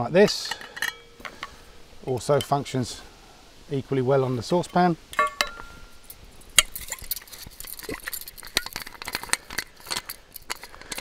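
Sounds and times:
metallic ring of cookware: 0.4 - 2.5, 4.3 - 7.0
taps and clicks of metal: 0.4 - 2.6, 5.1 - 11.0.

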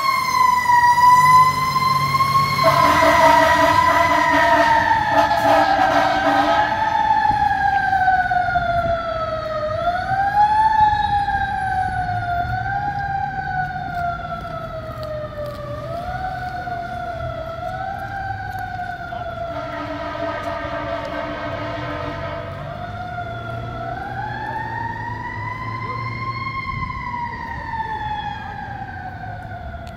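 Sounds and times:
fire engine siren wailing: 0.0 - 29.9.

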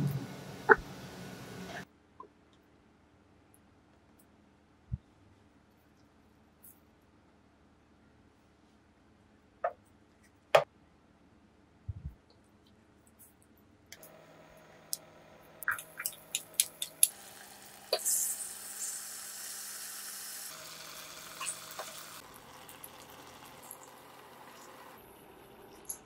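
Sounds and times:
oil ticking and popping: 15.6 - 19.0, 20.5 - 25.0
fish sizzling in oil: 15.6 - 25.9.

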